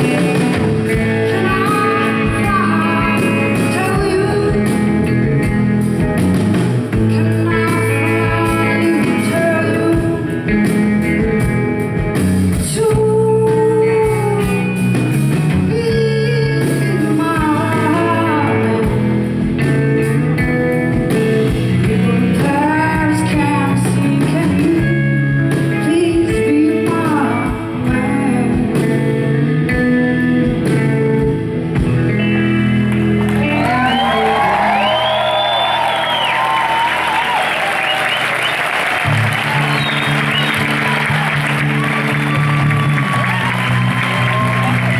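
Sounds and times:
woman singing: 0:00.0 - 0:05.5, 0:06.9 - 0:11.2, 0:12.5 - 0:20.1, 0:21.4 - 0:31.3
electric guitar: 0:00.0 - 0:44.9
live rock band playing: 0:00.0 - 0:44.9.

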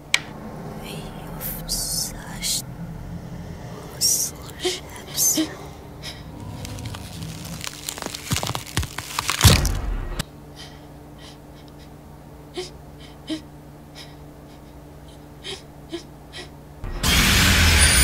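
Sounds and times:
steady low hum: 0:00.0 - 0:17.1
woman gasping and breathing: 0:01.0 - 0:08.5
loud sudden jolt: 0:06.4 - 0:10.2.

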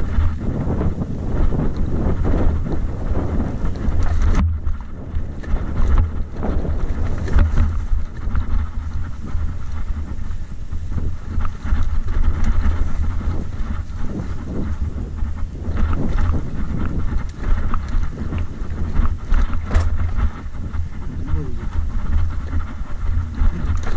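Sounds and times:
wind buffeting microphone: 0:00.0 - 0:23.9
bike rattling knocks: 0:19.5 - 0:20.3.

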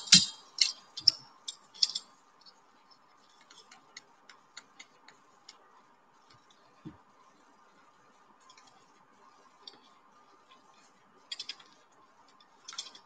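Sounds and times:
spoon and stick tapping and scraping: 0:00.0 - 0:02.0.

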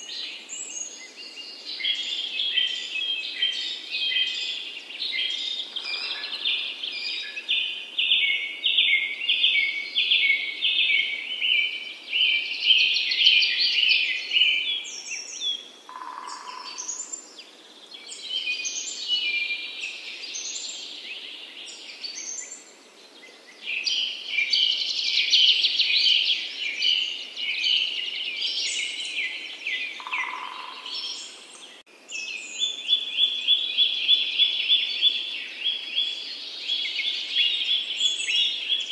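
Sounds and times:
birds chirping chorus: 0:00.0 - 0:38.9
lower whistled bird call: 0:23.7 - 0:31.4.

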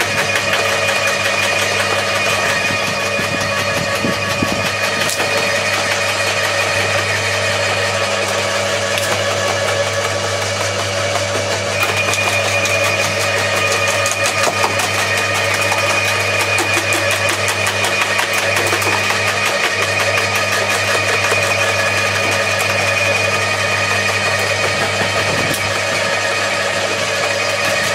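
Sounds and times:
shredder motors humming: 0:00.0 - 0:27.9.

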